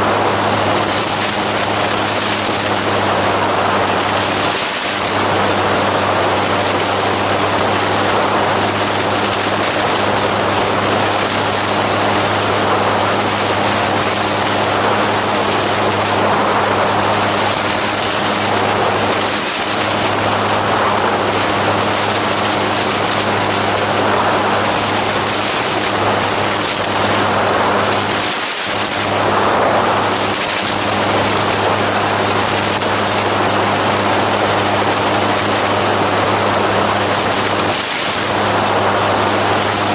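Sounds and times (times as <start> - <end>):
aircraft engine droning: 0.0 - 39.9
wind rushing over microphone: 0.0 - 39.9.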